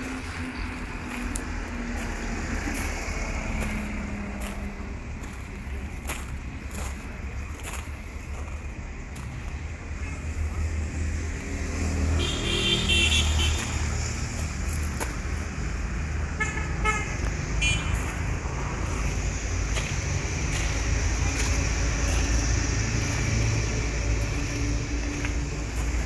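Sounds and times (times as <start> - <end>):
low traffic rumble: 0.0 - 26.0
vehicle horns honking: 12.1 - 13.9, 16.4 - 18.1.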